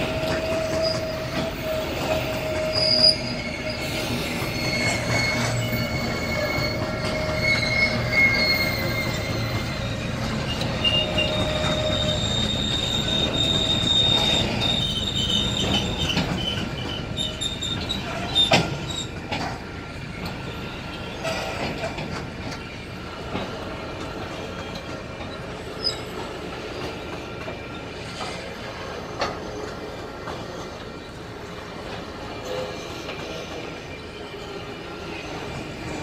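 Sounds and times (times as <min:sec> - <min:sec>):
high-pitched wheel squeals: 0:00.0 - 0:22.0, 0:24.3 - 0:30.7
train wheels rumbling over rails: 0:00.0 - 0:36.0.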